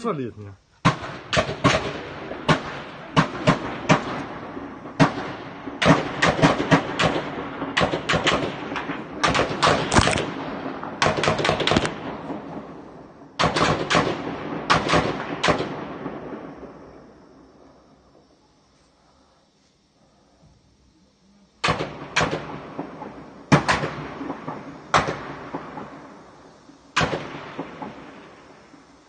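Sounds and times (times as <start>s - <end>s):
gunfire bursts: 0.8s - 12.8s, 13.4s - 16.2s, 21.6s - 26.0s, 27.0s - 28.1s
echoing gunshot tail: 0.8s - 17.2s, 21.6s - 28.6s.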